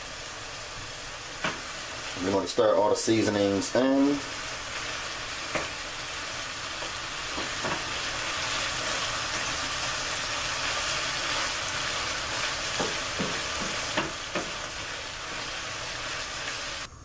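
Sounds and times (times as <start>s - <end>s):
meat and onions sizzling in a skillet: 0.0s - 16.9s
spoon knocking against pan: 12.8s - 14.6s.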